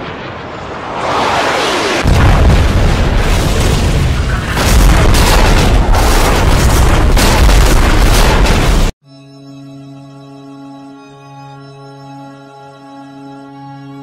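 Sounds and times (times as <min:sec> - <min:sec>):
heavy explosions booming: 0:01.9 - 0:08.9.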